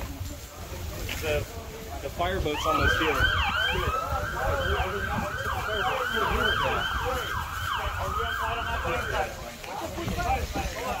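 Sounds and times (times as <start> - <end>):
emergency siren yelping: 2.5 - 9.4.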